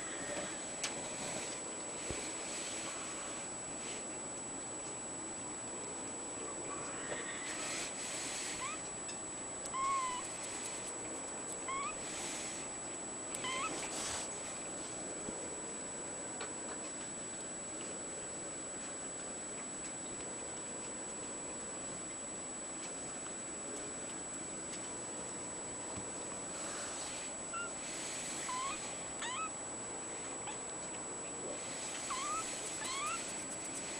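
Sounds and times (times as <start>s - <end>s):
kitten mewing: 8.5s - 8.9s, 9.7s - 10.4s, 11.6s - 12.0s, 13.3s - 14.0s, 27.5s - 29.6s, 30.4s - 30.6s, 31.9s - 33.4s.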